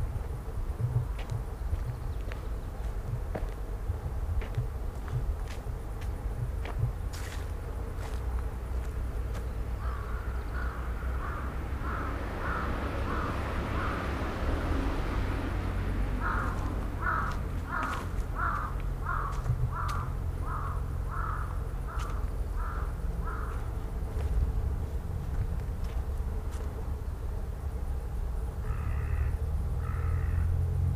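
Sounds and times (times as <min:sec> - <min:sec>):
crow cawing: 0:09.8 - 0:14.2, 0:16.2 - 0:23.8, 0:28.6 - 0:30.5.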